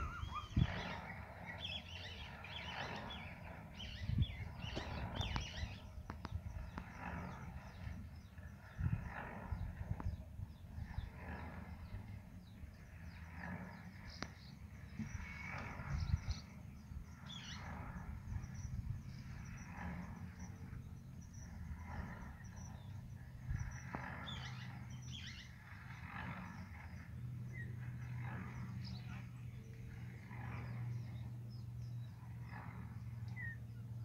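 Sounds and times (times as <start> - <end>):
faint animal calls: 0.0 - 3.3
wind rumble on microphone: 0.0 - 34.0.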